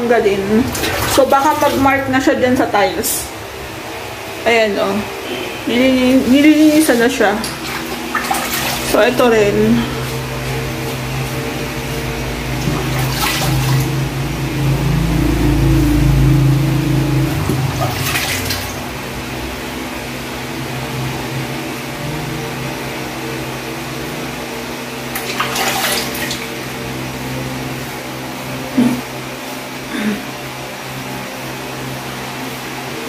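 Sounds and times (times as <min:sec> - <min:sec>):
machine hum: 0:00.0 - 0:33.0
deep rumble: 0:09.9 - 0:19.3.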